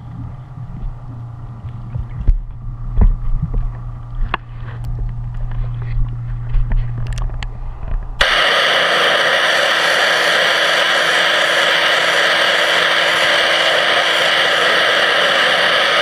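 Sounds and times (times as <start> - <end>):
low hum: 0.0 - 16.0
pressure washer jet hissing underwater: 8.2 - 16.0.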